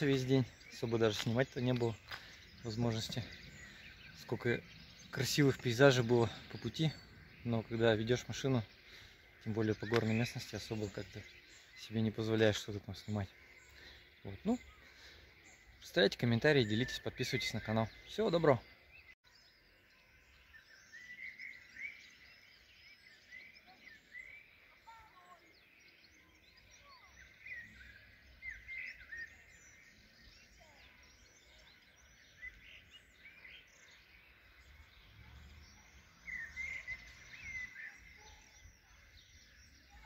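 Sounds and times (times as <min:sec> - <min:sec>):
songbirds chirping and warbling: 0:00.0 - 0:40.0.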